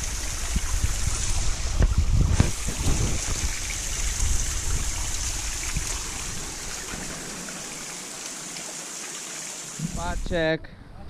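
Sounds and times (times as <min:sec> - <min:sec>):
stream trickling over rocks: 0:00.0 - 0:10.4
low microphone rumble: 0:09.8 - 0:11.0.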